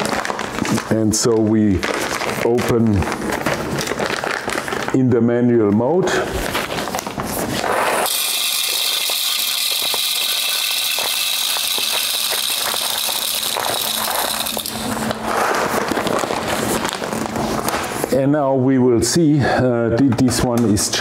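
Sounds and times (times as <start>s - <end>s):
coffee beans rattling into grinder: 7.6s - 17.7s.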